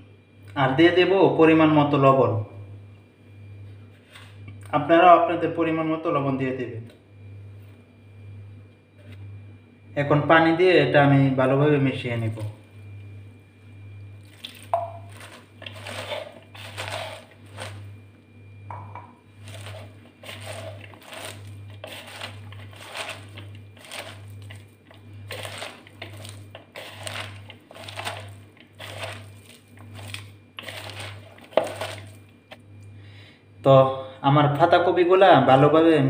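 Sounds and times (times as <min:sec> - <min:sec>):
hand mixing wet vegetables: 0:11.4 - 0:32.9.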